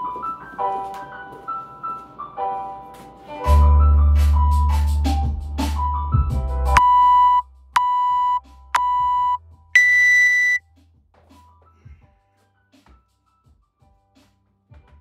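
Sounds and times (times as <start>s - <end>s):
music: 0.0s - 15.0s
longer higher-pitched beep: 6.8s - 10.6s
short beeps: 6.8s - 10.6s.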